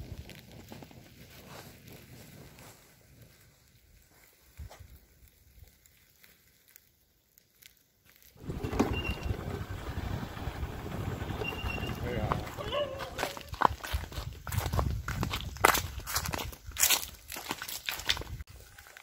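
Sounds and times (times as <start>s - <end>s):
faint rustling and crackling: 0.0s - 8.4s.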